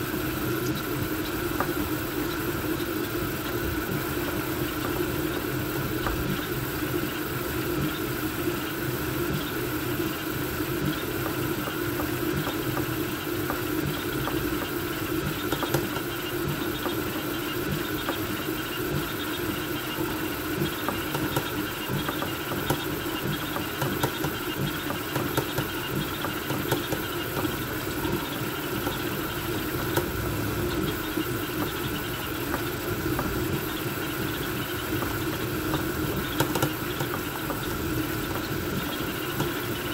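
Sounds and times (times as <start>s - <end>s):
steady fan noise: 0.0s - 39.9s
stepper motors humming: 19.7s - 39.9s.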